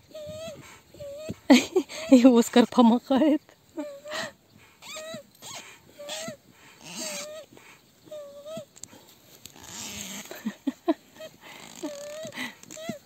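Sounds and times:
rustling: 4.6s - 13.0s.

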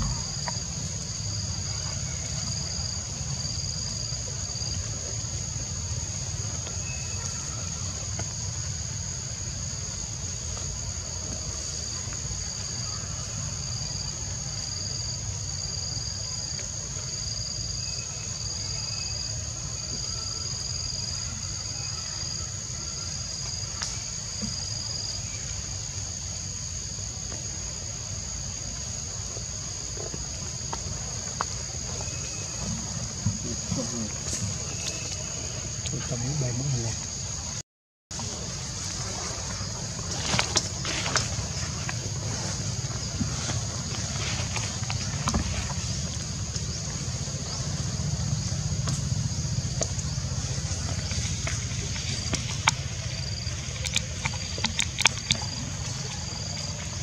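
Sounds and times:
low steady rumble: 38.2s - 57.0s.

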